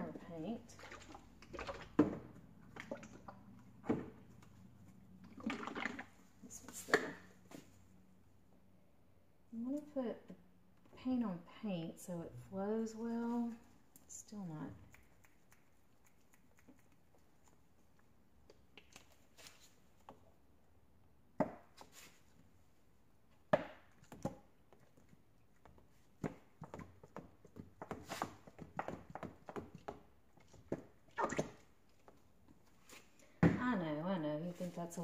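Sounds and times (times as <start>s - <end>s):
squeeze bottle pouring paint: 0.6s - 4.1s, 5.2s - 7.2s.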